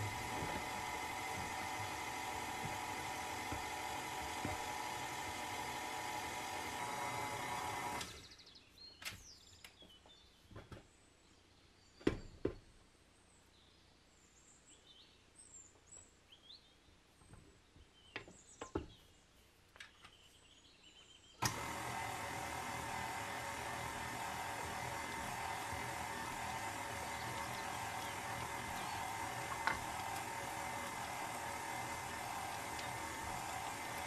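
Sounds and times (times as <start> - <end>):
stand mixer running: 0.0 - 8.2, 21.4 - 34.0.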